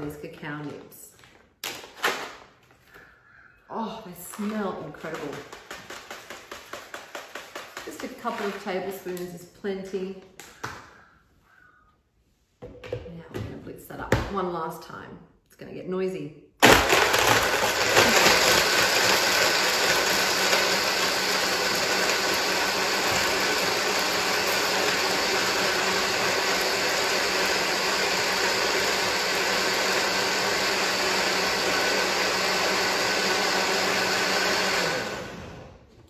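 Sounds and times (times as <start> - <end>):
blender whirring: 4.4 - 8.9, 16.6 - 35.9.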